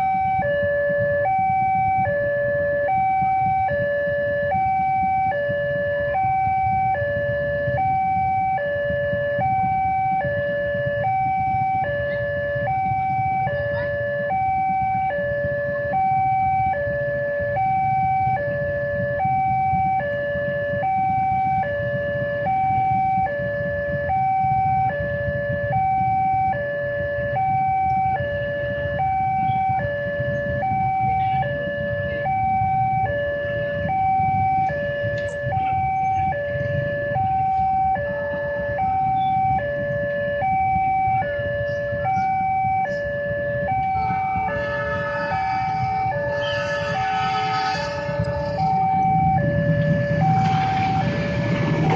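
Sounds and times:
level crossing two-tone alarm: 0.0 - 51.9.

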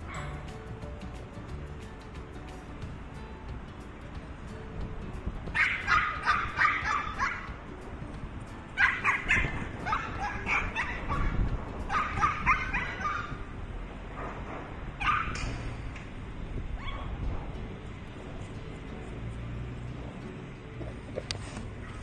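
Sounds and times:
small dog yapping: 5.6 - 7.5, 8.8 - 13.4, 15.0 - 15.6, 16.8 - 17.2.

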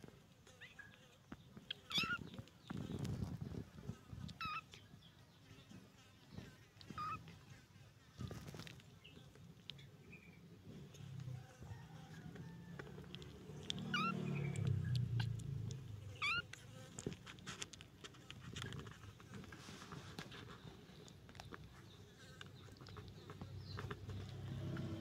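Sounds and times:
light scratching: 0.0 - 4.9, 5.5 - 25.0
kittens mewing: 1.7 - 2.2, 6.8 - 7.3, 13.0 - 16.6.

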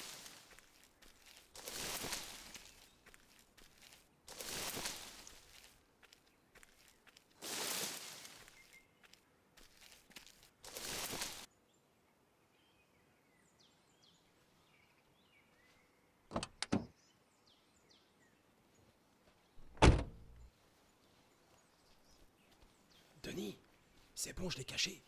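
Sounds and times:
rustling in dry grass: 0.0 - 11.5
faint bird chirps: 8.2 - 9.3
car door latch clicks: 19.7 - 20.2
car door slamming: 19.8 - 20.2.

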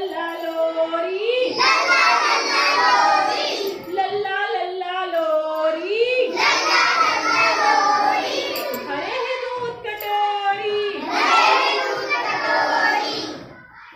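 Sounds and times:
children singing together: 1.4 - 3.9, 5.7 - 9.4, 10.6 - 13.9.

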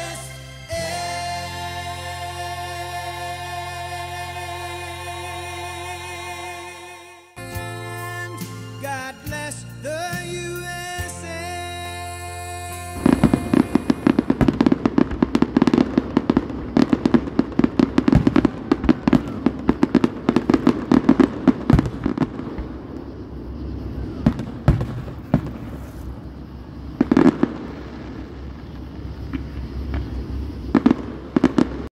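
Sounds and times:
fireworks bangs and crackling: 10.1 - 31.9.

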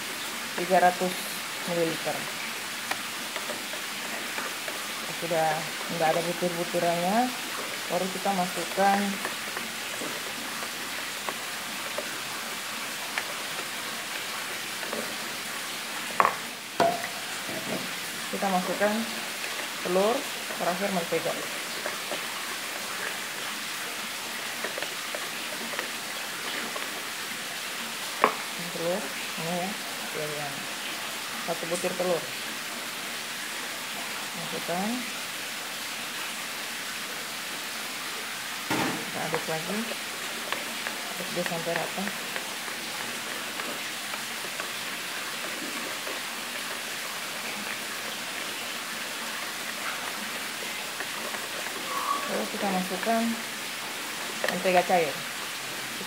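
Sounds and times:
whisk beating batter: 0.6 - 30.1, 39.1 - 55.5
whisk ticking against bowl: 2.7 - 27.6, 39.2 - 51.8.

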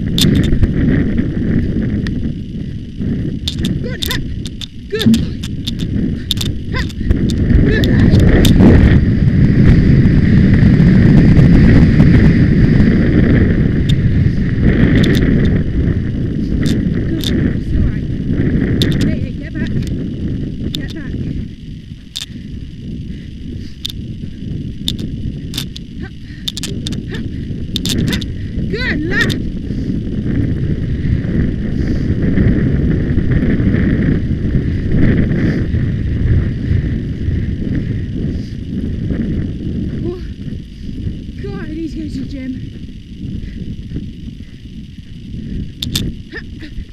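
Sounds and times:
sharp clicks: 0.0 - 0.7, 3.4 - 8.7, 13.8 - 14.0, 14.9 - 15.6, 16.5 - 17.5, 18.7 - 20.0, 20.6 - 28.4, 45.0 - 46.4
wind rumble on microphone: 0.0 - 46.9.

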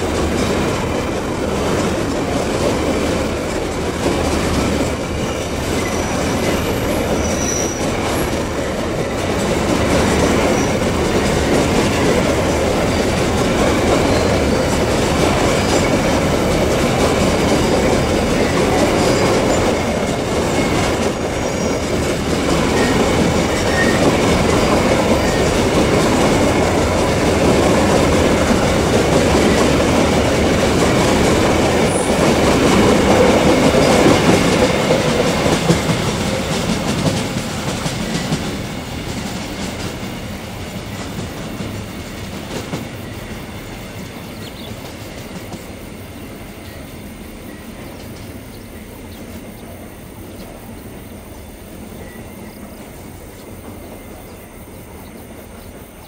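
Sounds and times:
train wheels clattering on rail joints: 0.0 - 56.0
high wheel squeal: 5.2 - 9.2, 12.1 - 14.7, 17.7 - 25.7.

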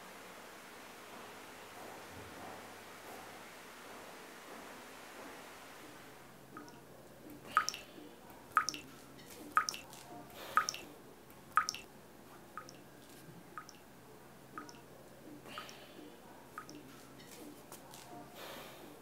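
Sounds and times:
water dripping into metal sink: 7.5 - 7.9, 8.5 - 8.9, 9.5 - 9.8, 10.6 - 10.9, 11.5 - 11.9, 12.6 - 12.8, 13.6 - 13.8, 14.6 - 14.8, 16.6 - 16.8.

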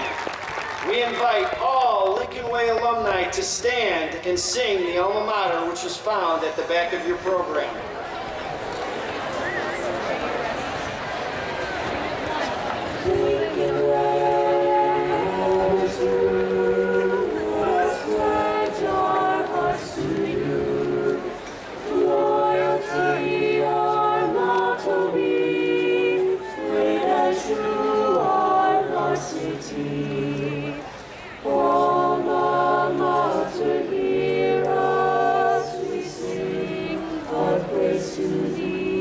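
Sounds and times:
crowd singing together: 9.1 - 39.0.

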